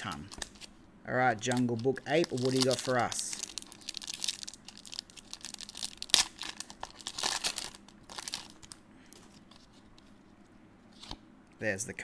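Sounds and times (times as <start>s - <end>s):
foil wrapper crinkling and tearing: 1.4s - 8.8s.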